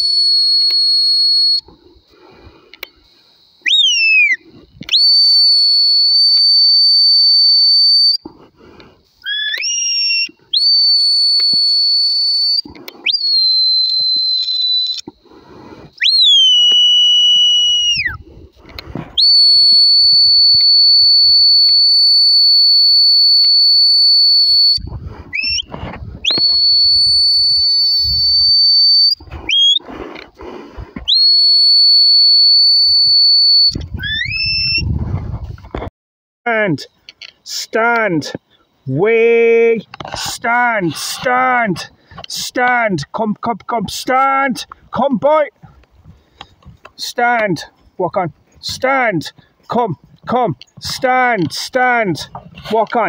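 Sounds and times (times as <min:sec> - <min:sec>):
high-pitched whistle blasts: 0:00.0 - 0:01.7, 0:03.4 - 0:08.2, 0:09.2 - 0:15.2, 0:16.0 - 0:18.2, 0:19.2 - 0:29.9, 0:31.0 - 0:34.9
whistles sliding down in pitch: 0:00.0 - 0:01.7, 0:03.6 - 0:08.2, 0:09.2 - 0:15.2, 0:16.0 - 0:18.2, 0:19.2 - 0:29.9, 0:31.0 - 0:34.9
short rising whistles: 0:00.0 - 0:02.0, 0:03.0 - 0:08.3, 0:09.2 - 0:15.3, 0:15.9 - 0:18.2, 0:19.2 - 0:29.9, 0:31.0 - 0:35.0.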